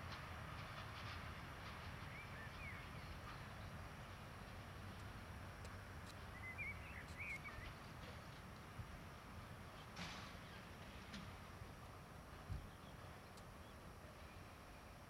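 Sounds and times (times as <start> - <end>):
distant diesel locomotive rumble: 0.0 - 15.0
bird chirping: 6.2 - 7.9.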